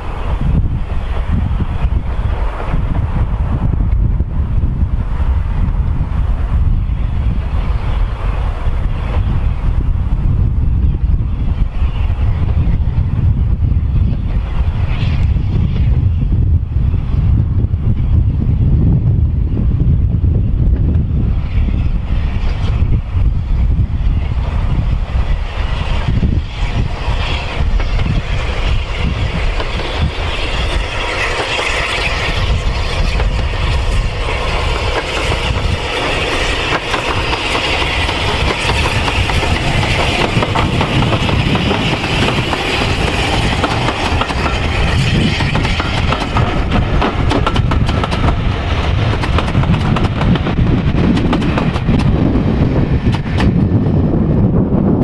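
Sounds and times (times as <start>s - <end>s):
steam locomotive passing: 0.0s - 55.0s
coaches rolling on rails: 19.5s - 55.0s.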